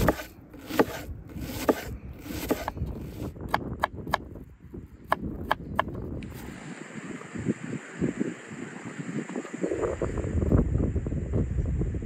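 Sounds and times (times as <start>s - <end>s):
knife slicing onion: 0.0s - 4.3s.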